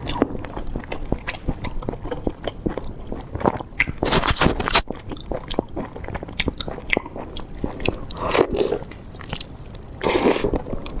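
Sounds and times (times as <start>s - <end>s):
wet chewing clicks and smacks: 0.0s - 9.8s.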